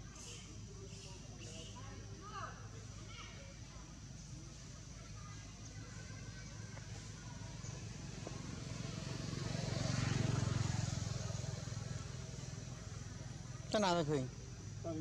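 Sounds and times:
vehicle engine rumble passing: 3.9s - 15.0s.

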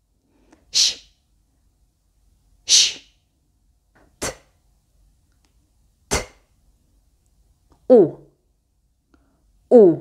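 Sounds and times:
woman pronouncing consonant sounds: 6.1s - 6.5s, 7.8s - 8.4s, 9.7s - 10.0s.

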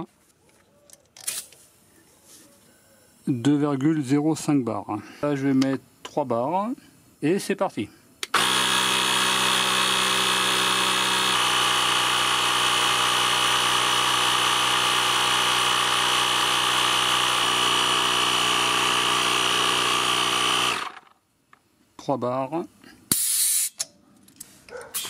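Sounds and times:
tyre compressor droning: 8.3s - 21.1s.

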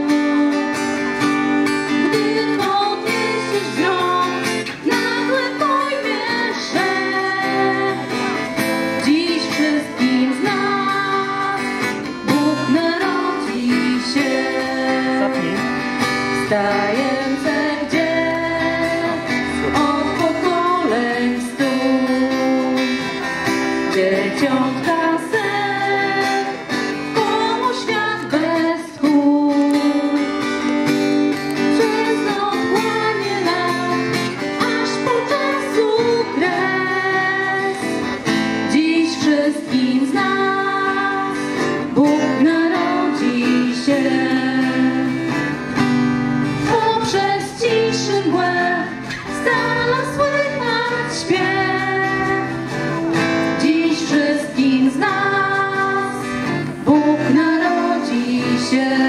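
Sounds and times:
women singing: 0.0s - 1.0s, 1.8s - 30.5s, 31.5s - 45.4s, 46.5s - 59.0s
acoustic guitar strumming: 0.0s - 59.0s.

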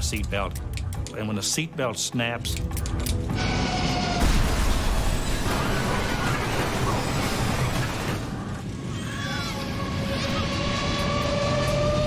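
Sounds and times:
music: 0.0s - 3.6s
jet crash rumble and roar: 3.3s - 12.0s.

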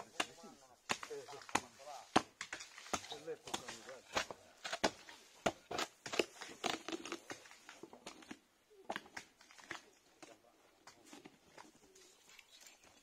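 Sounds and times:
bark cracking and tearing: 5.7s - 9.9s.

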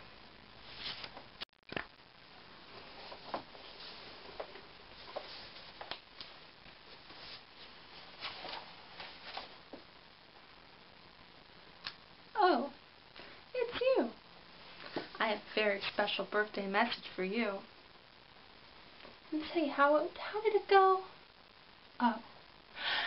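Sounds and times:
room hiss: 0.0s - 23.0s
book pages rustling and turning: 0.6s - 1.8s, 2.7s - 9.6s.

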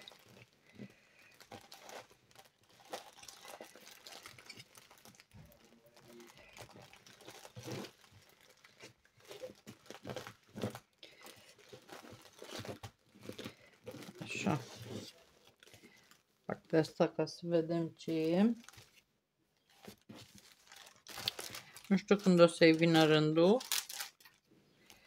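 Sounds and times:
plastic and paper crinkling: 0.0s - 16.3s, 18.0s - 25.0s.

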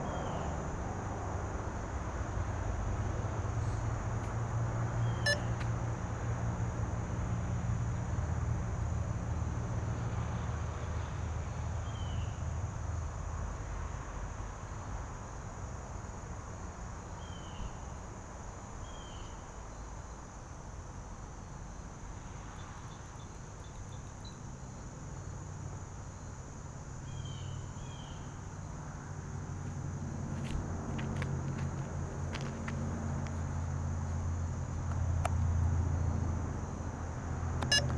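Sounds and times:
insects chirping: 0.0s - 37.9s
bird chirps: 5.0s - 5.6s.

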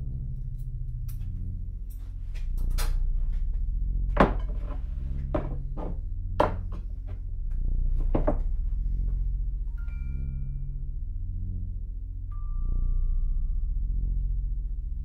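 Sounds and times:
low steady drone: 0.0s - 15.0s
objects knocking on wooden workbench: 4.2s - 6.8s, 8.1s - 8.4s.

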